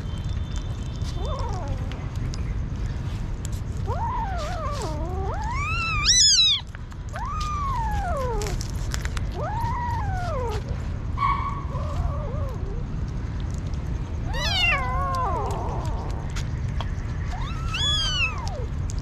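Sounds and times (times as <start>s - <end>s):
kittens meowing: 1.0s - 2.2s, 3.8s - 13.0s, 14.2s - 16.4s, 17.1s - 18.9s.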